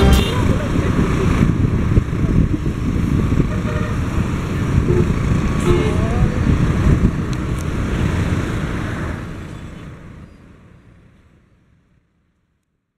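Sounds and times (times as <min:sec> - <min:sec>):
road traffic rumble: 0:00.0 - 0:11.8
wind on microphone: 0:00.3 - 0:08.4.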